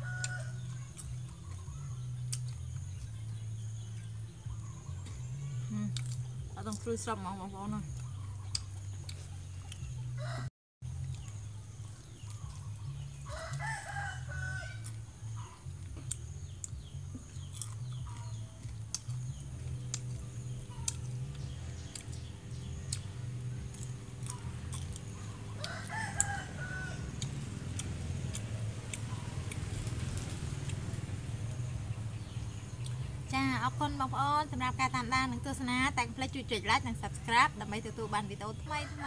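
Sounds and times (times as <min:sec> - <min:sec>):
rooster crowing: 0:00.0 - 0:00.9, 0:10.2 - 0:10.5, 0:13.3 - 0:14.8, 0:25.5 - 0:27.4.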